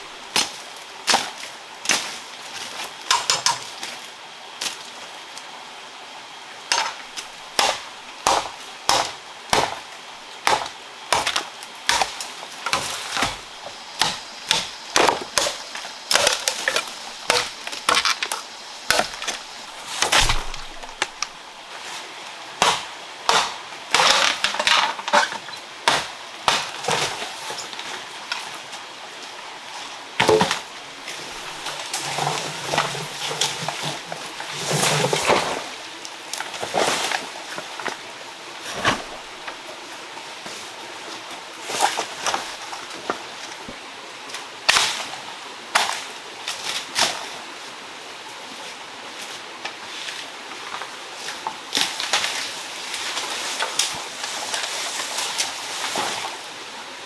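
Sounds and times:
bamboo cracking and splintering: 6.7 - 21.4, 22.6 - 28.4
knife chopping bamboo: 7.6 - 9.8, 10.4 - 13.4, 14.0 - 18.1, 20.0 - 21.2, 22.6 - 24.3.

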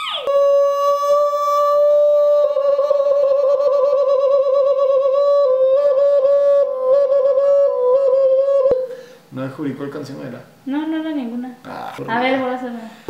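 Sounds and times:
man humming a tune: 0.0 - 9.1.

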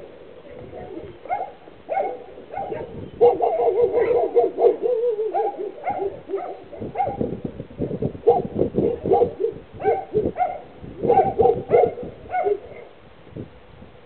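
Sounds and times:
dog whining and yipping: 1.0 - 7.2.

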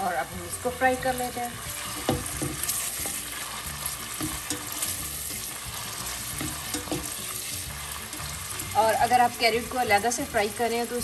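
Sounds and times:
carrots sizzling in oil: 0.0 - 11.0
light stirring taps: 1.8 - 8.8.

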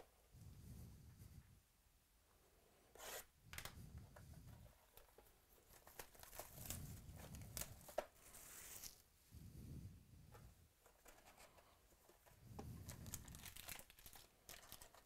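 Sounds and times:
plastic wrap crinkling and tearing: 5.6 - 9.0, 12.8 - 15.0.

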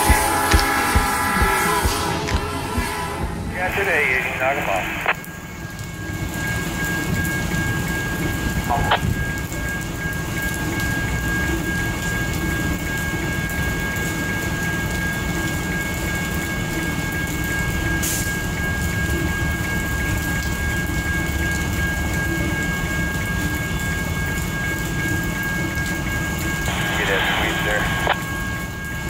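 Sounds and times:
diesel locomotive engine rumbling: 0.0 - 12.1
faint high-pitched tone: 0.0 - 12.1.

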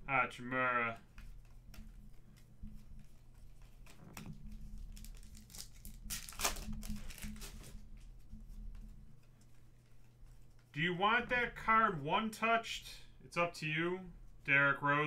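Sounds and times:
foil wrapper crinkling and tearing: 3.6 - 7.8.

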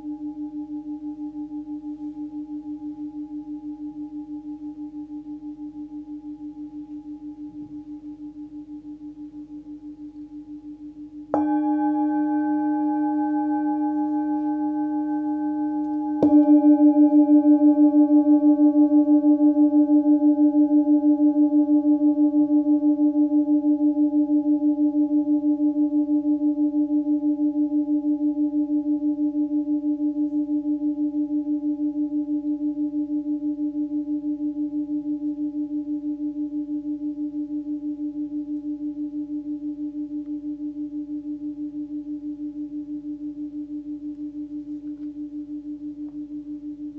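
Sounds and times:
singing bowl ringing: 0.0 - 46.9.

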